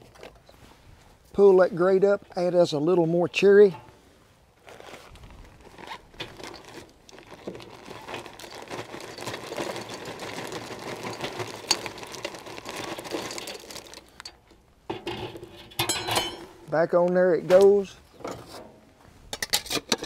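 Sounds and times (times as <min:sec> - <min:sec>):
paper bag crinkling: 0:04.6 - 0:14.2
wood chips rattling into drum: 0:06.3 - 0:16.4.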